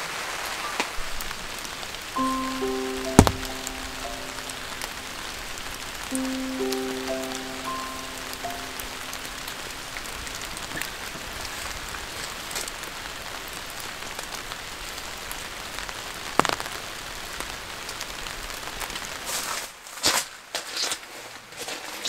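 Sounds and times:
steady rain: 0:00.0 - 0:19.7
sharp knock: 0:03.1 - 0:03.6.

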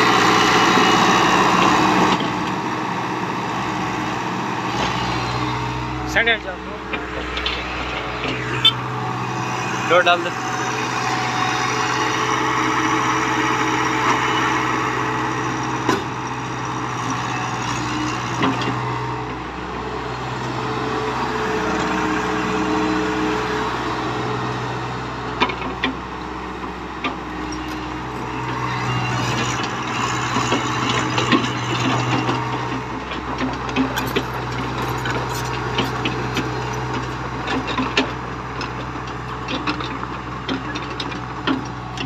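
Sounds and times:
excavator diesel engine running: 0:00.0 - 0:42.0
dirt and stones pushed by blade: 0:33.6 - 0:37.7.

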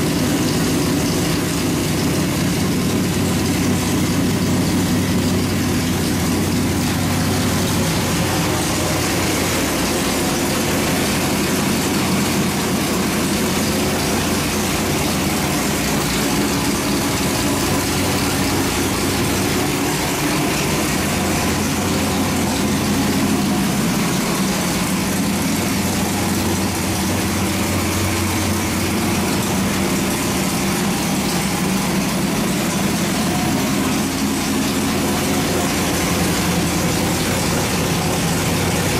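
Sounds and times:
vee-eight engine idling: 0:00.0 - 0:38.9.

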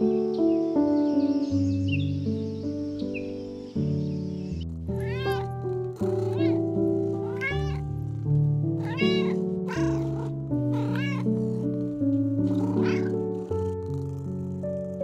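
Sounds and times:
background music of held notes: 0:00.0 - 0:15.0
kitten meowing: 0:04.9 - 0:13.9.

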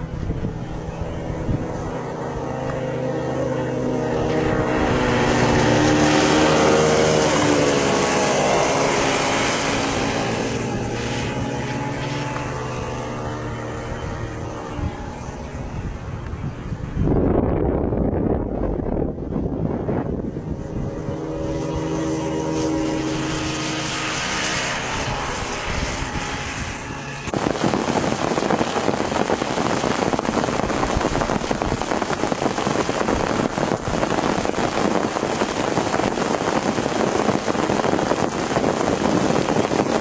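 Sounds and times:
kart engines running: 0:00.0 - 0:16.9, 0:20.4 - 0:40.0
heavy rain hissing: 0:04.6 - 0:12.8, 0:27.3 - 0:40.0.

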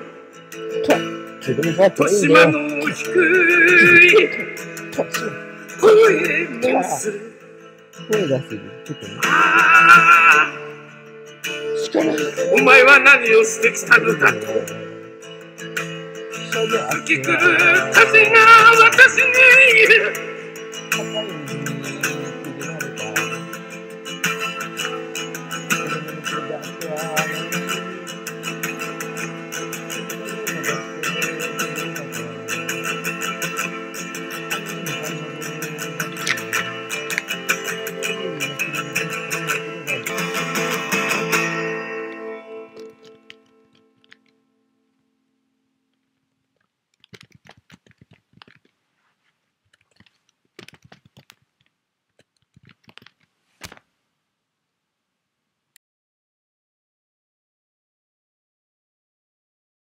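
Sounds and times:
acoustic guitar picked and strummed: 0:00.0 - 0:48.7, 0:49.8 - 0:51.4
hands handling recording device: 0:42.8 - 0:44.4, 0:46.0 - 0:54.0.

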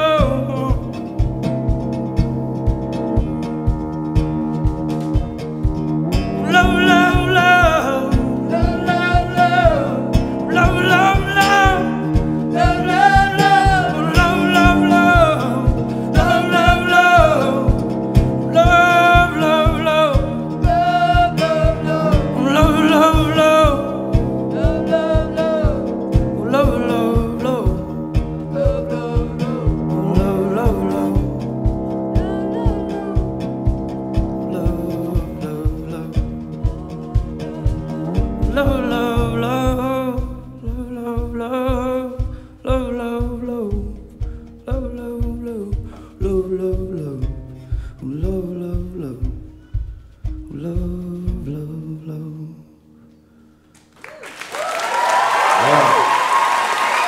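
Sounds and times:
cello: 0:00.0 - 0:40.3
drum kit beat: 0:00.0 - 0:52.2, 0:54.6 - 0:57.0
sung vocal melody: 0:00.0 - 0:53.4, 0:54.1 - 0:57.0
acoustic guitar strumming: 0:00.0 - 0:53.8.

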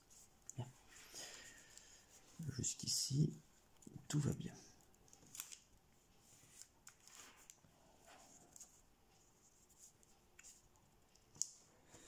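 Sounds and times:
paper rustling and crinkling: 0:06.3 - 0:08.8.

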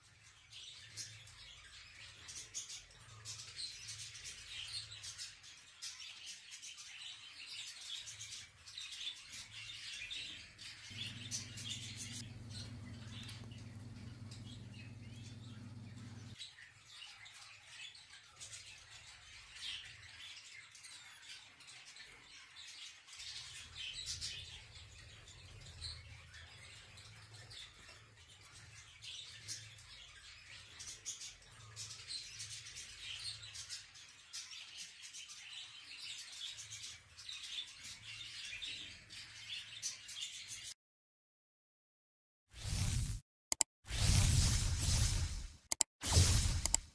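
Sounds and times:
birds chirping and twittering: 0:00.0 - 0:40.8, 0:43.9 - 0:46.9
faint low hum: 0:10.8 - 0:16.4.

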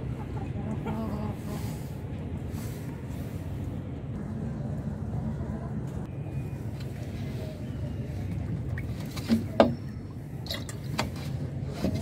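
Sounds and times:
low rumble: 0:00.0 - 0:06.6.

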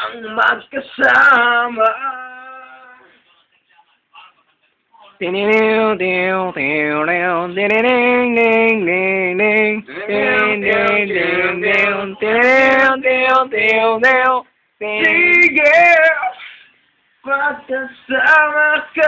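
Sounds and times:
man singing long held notes: 0:05.2 - 0:16.4.

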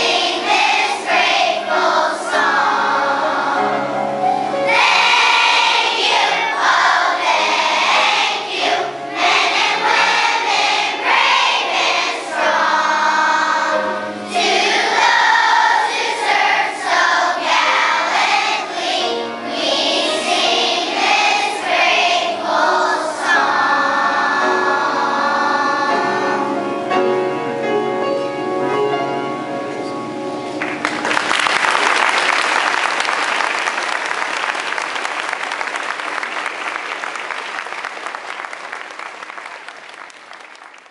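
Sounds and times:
children's choir singing: 0:00.0 - 0:27.2
applause: 0:30.6 - 0:40.9.

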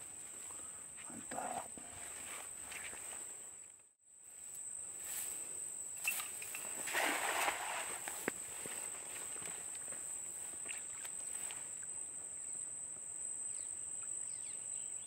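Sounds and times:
high insect drone: 0:00.0 - 0:15.0
net splashing into water: 0:06.2 - 0:08.3.

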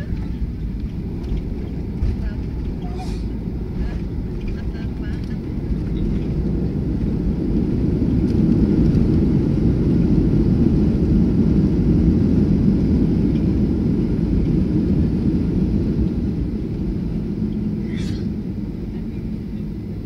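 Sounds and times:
jet engine noise: 0:00.0 - 0:20.0
wheel rumble on runway: 0:00.0 - 0:20.0.

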